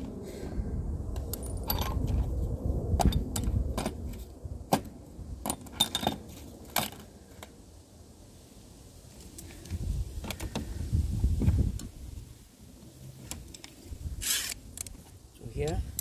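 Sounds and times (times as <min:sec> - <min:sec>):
low rumble: 0:00.0 - 0:05.4.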